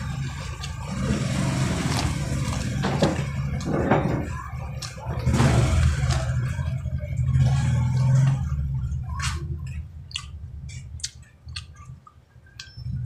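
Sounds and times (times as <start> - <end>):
loud low rumble: 0.0 - 10.9
chewing corn: 9.2 - 12.9
wet mouth clicks: 9.2 - 12.9.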